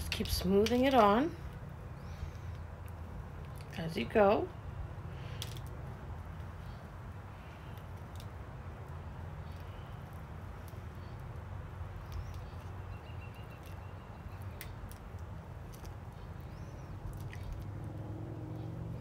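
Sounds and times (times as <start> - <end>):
sticky glove clicks and squeaks: 7.7 - 17.7.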